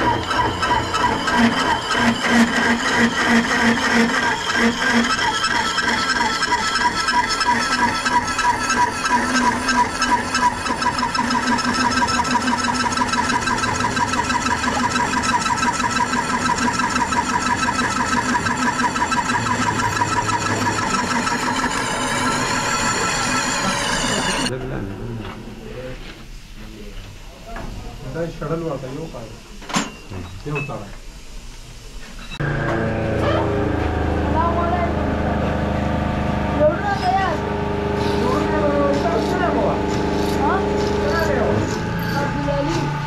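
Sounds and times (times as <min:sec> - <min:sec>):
milling machine cutting steel: 0:00.0 - 0:24.5, 0:35.0 - 0:43.0.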